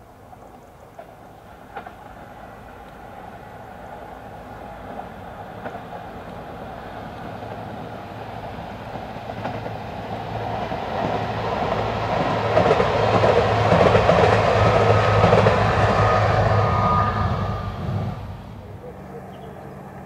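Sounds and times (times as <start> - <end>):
train wheels rumbling and rattling: 0.2 - 20.0
faint high whine: 14.6 - 20.0.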